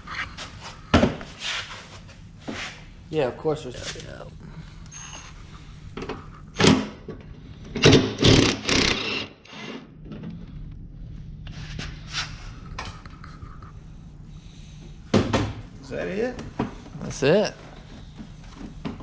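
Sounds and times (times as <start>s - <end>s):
steady low hum: 0.0s - 19.0s
cordless power driver whirring: 7.8s - 9.7s.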